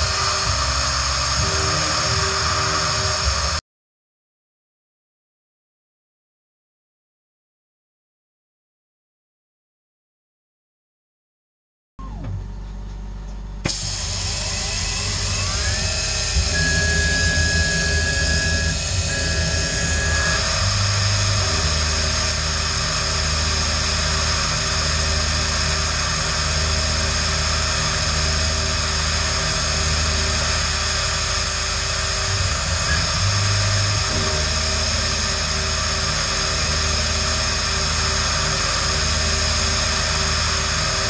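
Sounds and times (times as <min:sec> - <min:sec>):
milling machine spindle whine: 0:00.0 - 0:03.6, 0:12.3 - 0:41.0.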